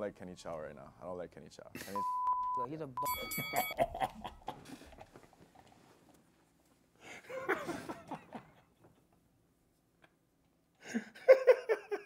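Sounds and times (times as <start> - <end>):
person laughing: 3.2 - 5.2, 7.3 - 8.5.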